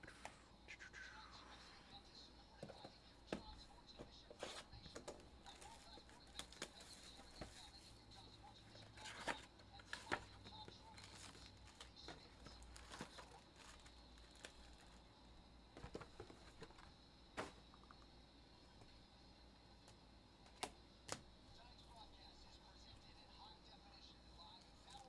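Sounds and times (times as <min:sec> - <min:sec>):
light clicks and taps of packs: 0:09.3 - 0:15.0
plastic wrap crinkling and tearing: 0:11.0 - 0:11.9, 0:12.6 - 0:15.0.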